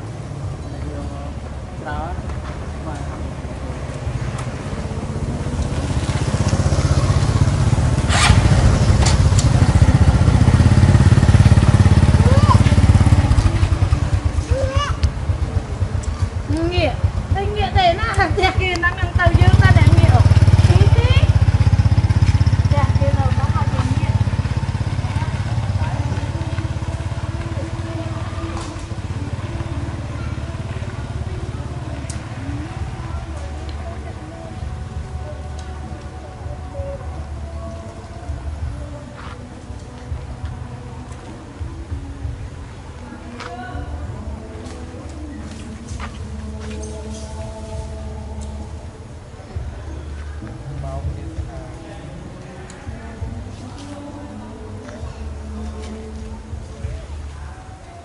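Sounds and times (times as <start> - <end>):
small engine idling: 4.7 - 33.9
small engine running: 5.8 - 14.6.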